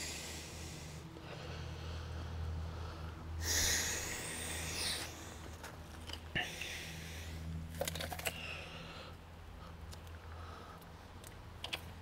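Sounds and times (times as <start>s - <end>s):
steady low hum: 0.0s - 12.0s
clicks and knocks of handling: 11.2s - 11.9s.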